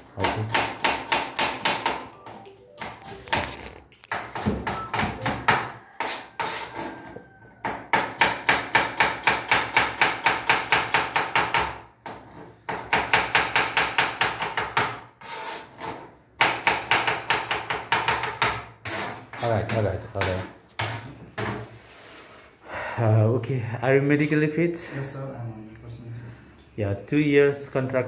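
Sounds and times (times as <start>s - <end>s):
knife chopping on plastic board: 0.2s - 2.1s.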